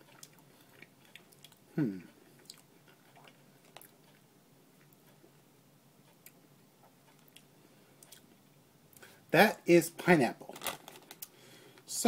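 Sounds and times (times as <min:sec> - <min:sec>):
person murmuring: 0:01.7 - 0:02.2.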